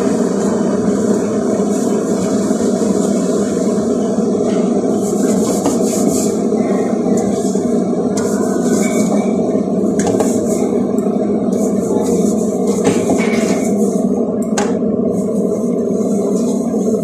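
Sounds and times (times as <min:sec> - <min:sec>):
loud steady background noise: 0:00.0 - 0:17.0.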